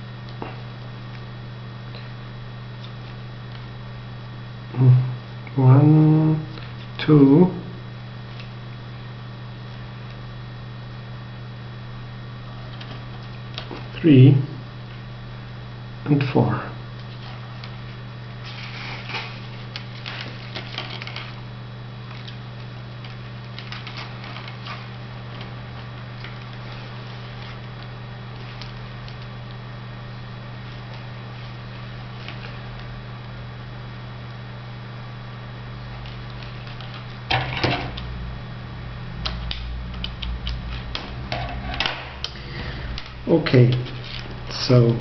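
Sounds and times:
steady low hum: 0:00.0 - 0:45.0
rustling and rubbing of straws: 0:17.0 - 0:29.3
plastic straws clicking and rustling: 0:18.5 - 0:21.4, 0:23.0 - 0:25.5.

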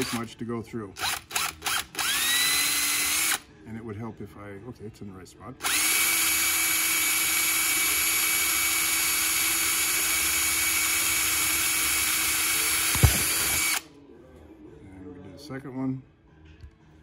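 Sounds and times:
electric drill boring plastic: 0:00.0 - 0:00.2, 0:01.0 - 0:03.4, 0:05.6 - 0:13.8
brief thump: 0:13.0 - 0:13.6.

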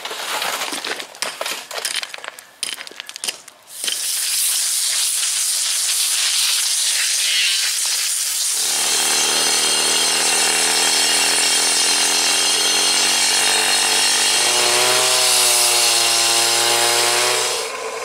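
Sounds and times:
pressure washer spray hissing: 0:03.7 - 0:08.6
saw blade grinding asphalt: 0:03.7 - 0:18.0
cut-off saw engine: 0:07.2 - 0:18.0.

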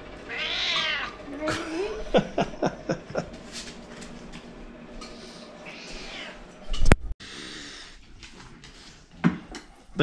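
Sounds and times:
cat meowing: 0:00.3 - 0:01.2, 0:05.7 - 0:06.4.

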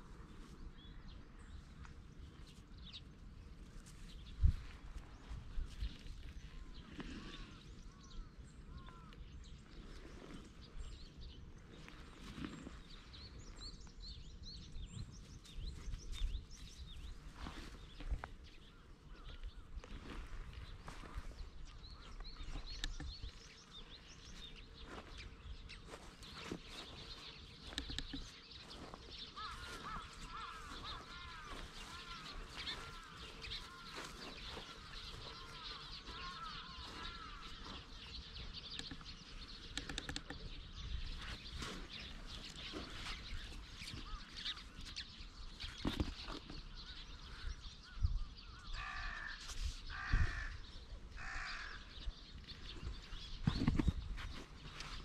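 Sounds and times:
crow cawing: 0:29.4 - 0:37.8, 0:48.7 - 0:52.0.

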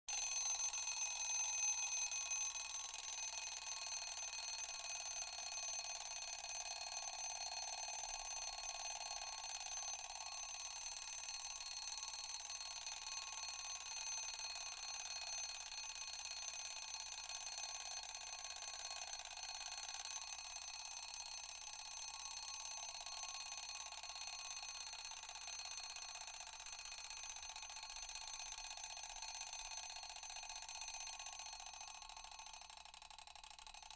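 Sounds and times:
alarm clock bell ringing: 0:00.1 - 0:06.3.

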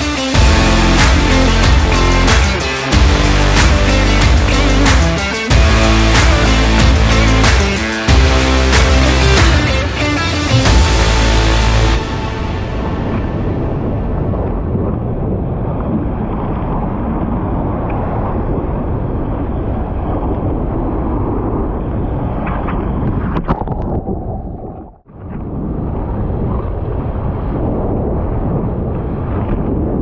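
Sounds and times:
heavy breaking surf: 0:00.0 - 0:23.2
wind buffeting the microphone: 0:12.1 - 0:30.0.

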